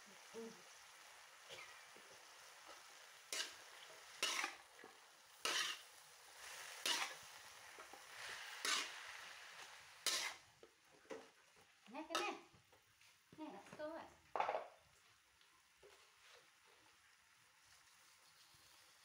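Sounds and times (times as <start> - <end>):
stir-frying sizzle: 0.0 - 19.0
metal spatula scraping wok: 2.6 - 10.4.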